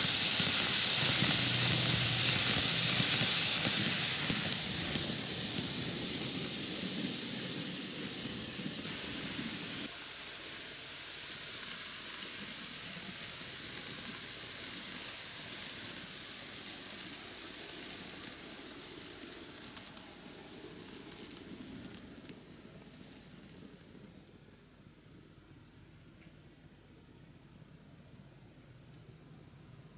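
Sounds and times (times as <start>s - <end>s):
model train wheels rattling: 0.0s - 10.0s, 11.2s - 24.0s
steady hiss: 0.0s - 29.9s.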